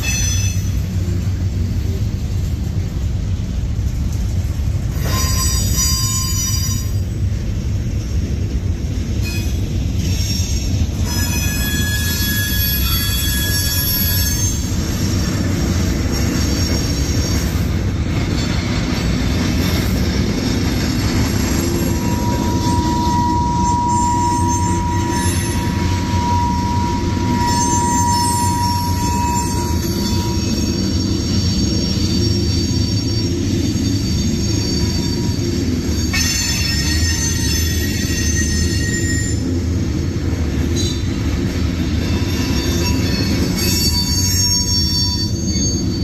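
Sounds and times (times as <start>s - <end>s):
train wheels rumbling on rails: 0.0s - 46.0s
wheel squeals: 5.0s - 7.2s, 9.2s - 14.8s, 21.4s - 39.5s, 41.9s - 46.0s.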